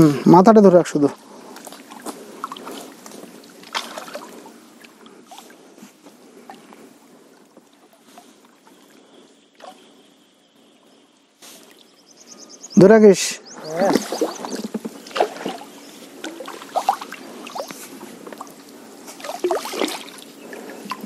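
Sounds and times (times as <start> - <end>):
oar paddling water: 1.3 - 12.7, 13.5 - 21.0
water splashing around rowboat: 1.4 - 10.1, 13.6 - 21.0.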